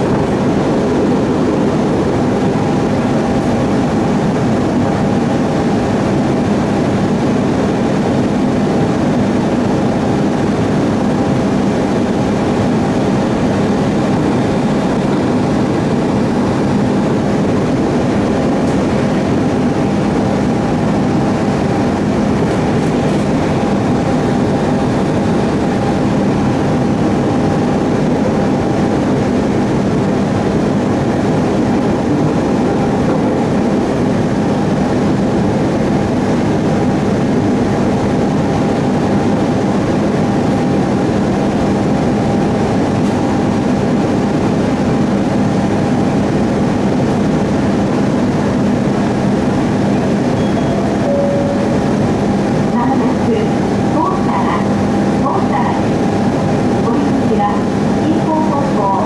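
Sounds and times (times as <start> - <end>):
train wheels rumbling on rails: 0.0 - 59.0
low hum: 48.7 - 58.2.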